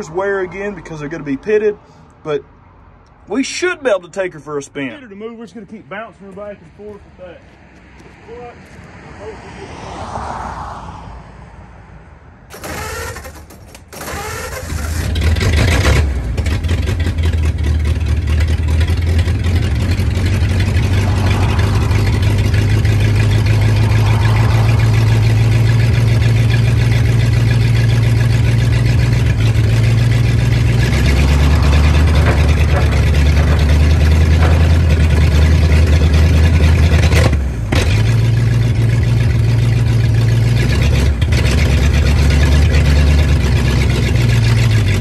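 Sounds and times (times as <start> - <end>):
starter cranking engine: 12.5 - 20.6
truck engine running: 12.5 - 45.0.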